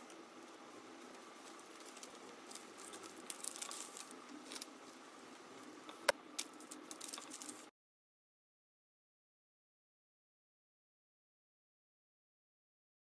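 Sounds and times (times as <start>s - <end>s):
paper rustling: 0.4s - 5.0s, 5.6s - 7.7s.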